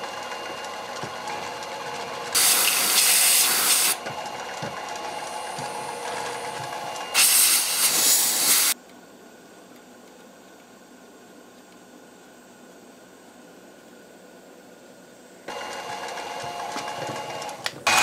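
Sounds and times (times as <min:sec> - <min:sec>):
drill press humming: 0:00.0 - 0:08.8, 0:15.5 - 0:18.0
compressed air hissing: 0:02.4 - 0:04.0, 0:07.1 - 0:08.8.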